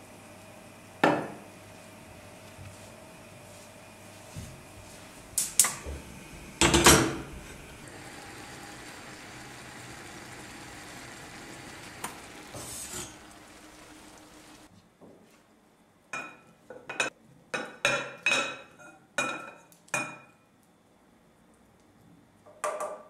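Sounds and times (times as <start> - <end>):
water boiling hiss: 0.0 - 14.7.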